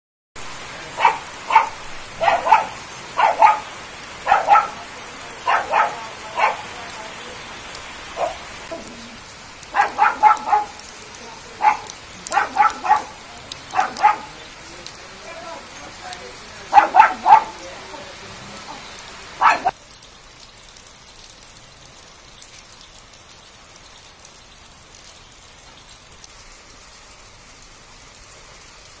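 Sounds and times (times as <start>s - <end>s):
heavy rain pouring: 0.4s - 29.0s
dog barking: 0.9s - 6.8s, 8.1s - 9.0s, 9.7s - 10.9s, 11.5s - 14.4s, 16.7s - 17.7s, 18.6s - 19.8s.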